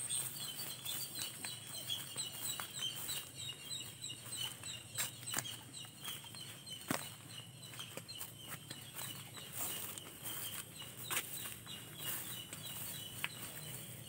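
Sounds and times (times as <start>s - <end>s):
birds calling: 0.0s - 14.0s
footsteps through grass and leaves: 0.0s - 14.0s.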